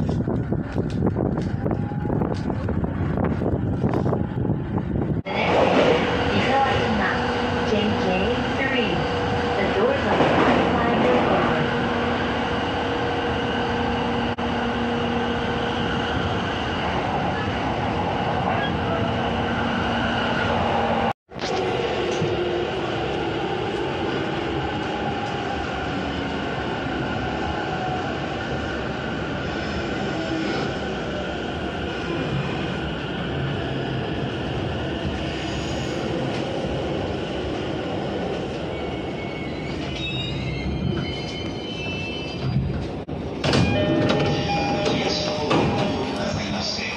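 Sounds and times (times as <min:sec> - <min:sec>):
train rumble: 0:00.0 - 0:46.9
train brakes squealing: 0:38.7 - 0:42.6.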